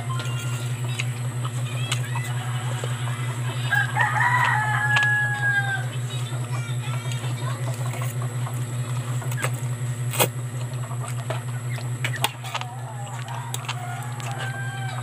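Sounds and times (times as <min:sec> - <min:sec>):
steady low hum: 0:00.0 - 0:15.0
chewing and mouth sounds: 0:07.0 - 0:15.0.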